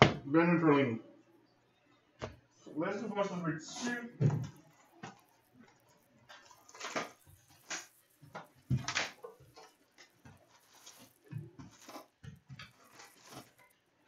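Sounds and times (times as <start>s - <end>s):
cellophane tearing and crinkling: 4.5s - 13.9s.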